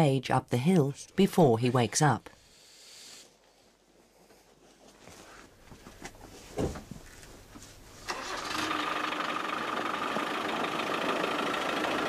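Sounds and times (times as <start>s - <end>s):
heavy thump: 6.5s - 6.9s
vehicle engine starting and running: 8.0s - 12.0s.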